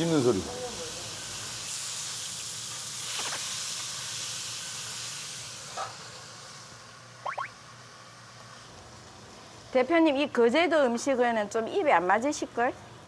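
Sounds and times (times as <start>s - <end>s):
fish sizzling in a pan: 0.0s - 9.7s.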